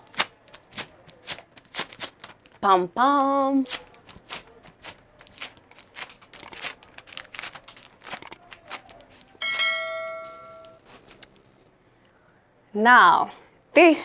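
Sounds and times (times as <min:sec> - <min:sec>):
sticky tape crackling and peeling: 0:00.0 - 0:02.6, 0:03.6 - 0:09.4
bell ding: 0:09.4 - 0:10.8.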